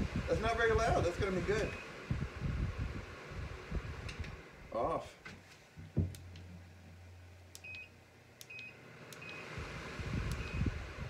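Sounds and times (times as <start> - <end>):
knock: 5.9 - 6.2.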